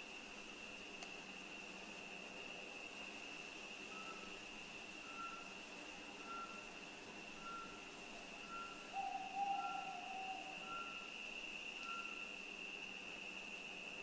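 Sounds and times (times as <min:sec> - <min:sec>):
high-pitched whine: 0:03.8 - 0:14.0.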